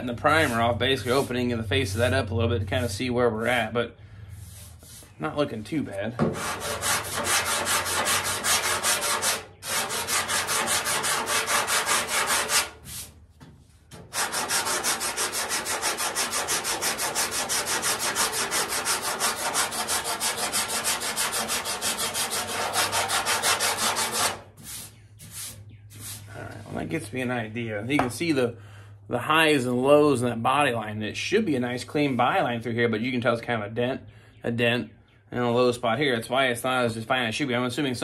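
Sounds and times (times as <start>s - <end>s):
sandpaper rasping on metal: 0.0s - 1.4s, 4.4s - 5.2s, 6.3s - 13.2s, 14.0s - 26.3s.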